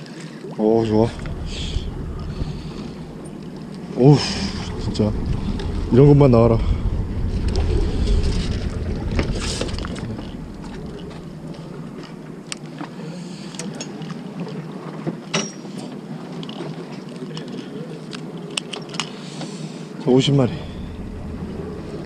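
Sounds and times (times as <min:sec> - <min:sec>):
wind buffeting microphone: 0:00.6 - 0:12.8, 0:20.1 - 0:22.0.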